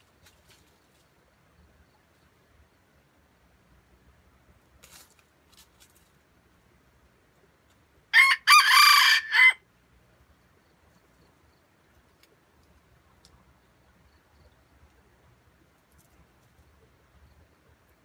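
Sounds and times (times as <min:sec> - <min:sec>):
rooster crowing: 0:08.1 - 0:09.6.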